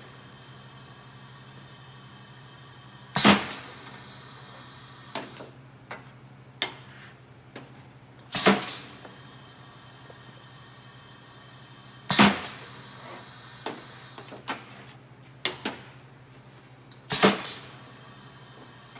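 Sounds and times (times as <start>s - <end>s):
air hiss: 0.0s - 5.5s, 8.3s - 14.5s, 17.1s - 18.9s
steady low hum: 0.0s - 18.9s
piston and valve clunk: 3.2s - 4.1s, 5.1s - 6.0s, 8.2s - 9.2s, 12.1s - 14.7s, 17.1s - 17.8s.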